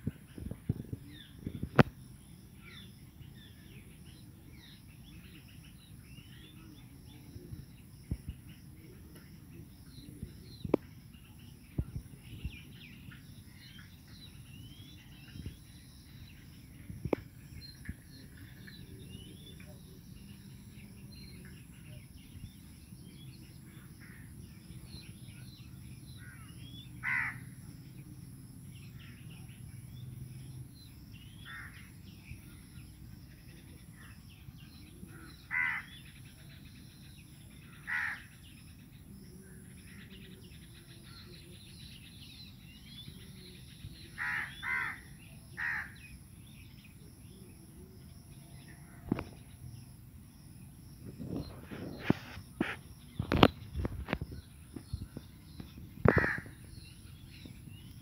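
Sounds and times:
small birds chirping: 0.0 - 58.0
crows cawing: 27.0 - 27.5, 31.4 - 31.8, 35.5 - 36.0, 37.8 - 38.3, 44.2 - 46.0, 56.0 - 56.6.

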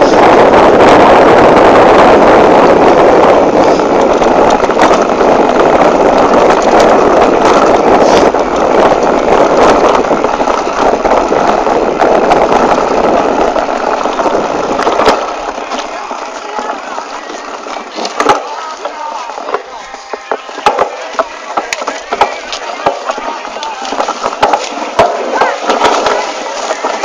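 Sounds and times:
mountain bike rattling on trail: 0.0 - 27.0
wind rushing on microphone: 0.0 - 27.0
knocks: 18.0 - 23.3.

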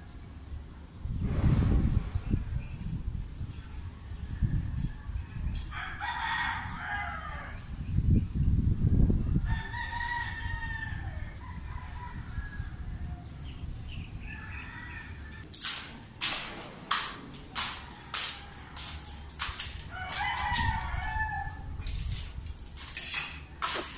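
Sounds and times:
low rumble: 1.0 - 3.3
rooster crowing: 4.2 - 7.7, 9.4 - 13.5, 14.2 - 15.4, 17.5 - 21.8.

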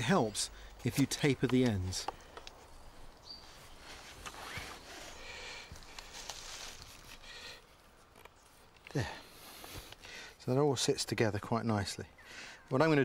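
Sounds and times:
wood clicking and creaking: 0.7 - 2.7.

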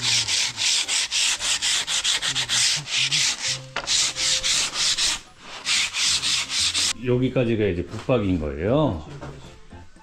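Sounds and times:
sandpaper rubbing: 0.0 - 7.0.

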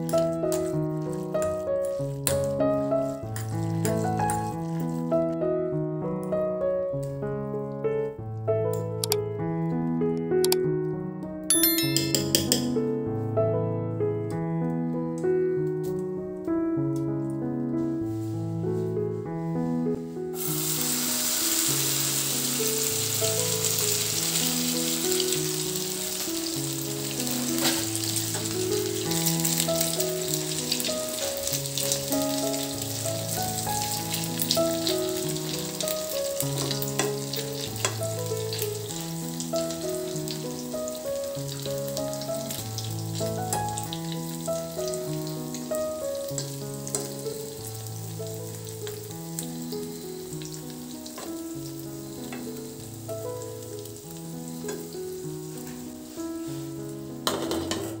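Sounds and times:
food sizzling in oil: 0.0 - 5.2, 20.4 - 58.0
soft background music: 0.0 - 58.0.

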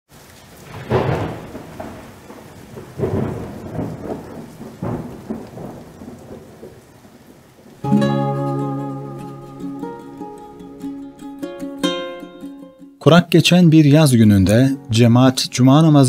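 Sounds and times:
steady rain: 0.1 - 11.8
thunder rumbling: 0.6 - 10.4
plucked string music: 7.8 - 16.0.

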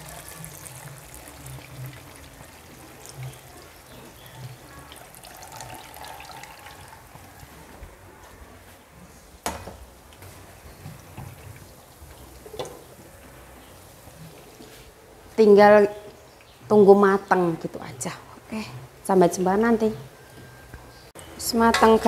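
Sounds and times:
liquid pouring and splashing: 0.0 - 7.6.

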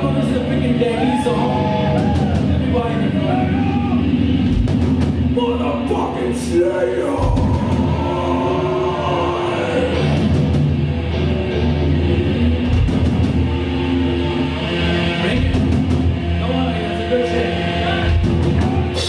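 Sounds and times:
heavy metal band playing: 0.0 - 19.0
wailing vocals: 6.8 - 10.0.

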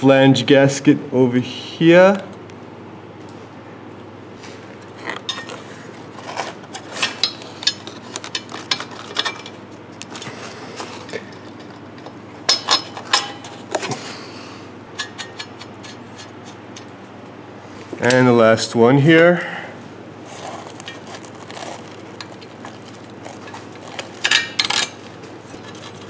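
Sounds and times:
metal parts clinking: 6.3 - 9.6, 11.1 - 13.6, 20.5 - 25.0.

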